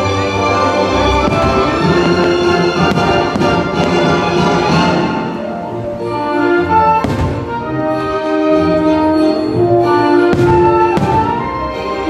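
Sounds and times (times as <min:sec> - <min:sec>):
orchestral music with timpani: 0:00.0 - 0:12.0
firework pops: 0:10.3 - 0:11.4.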